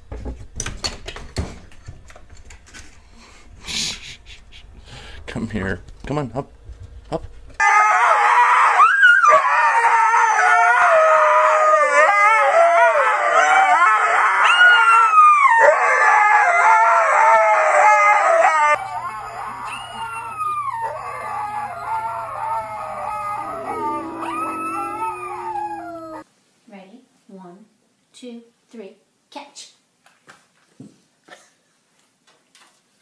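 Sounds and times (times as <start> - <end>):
dogs howling: 7.6 - 26.2.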